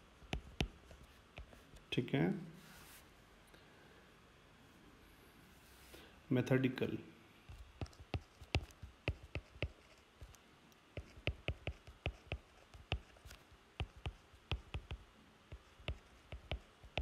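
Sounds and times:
stylus tapping on a screen: 0:07.5 - 0:10.4, 0:11.0 - 0:17.0.

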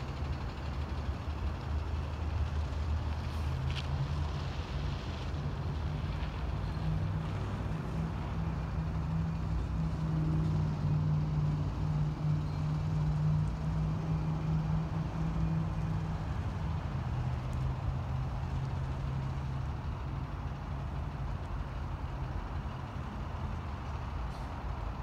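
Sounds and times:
engine droning: 0:00.0 - 0:25.0.

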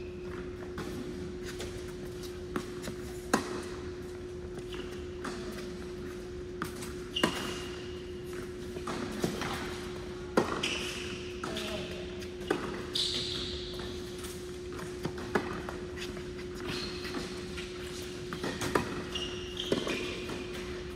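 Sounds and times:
shoe squeaks on court: 0:04.6 - 0:08.2, 0:10.4 - 0:14.7, 0:15.4 - 0:20.9.

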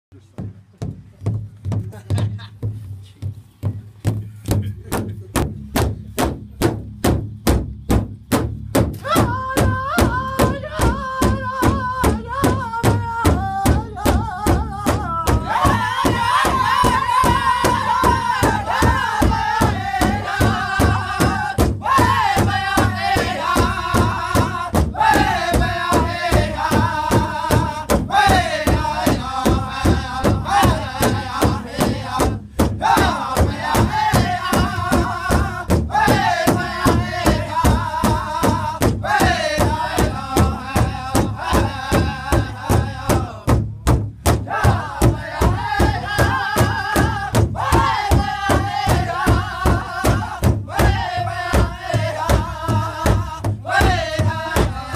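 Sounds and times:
big drum steady beat: 0:00.1 - 0:54.9
high-pitched voice singing: 0:09.0 - 0:14.9
group of voices singing: 0:09.0 - 0:43.6, 0:44.3 - 0:54.9.

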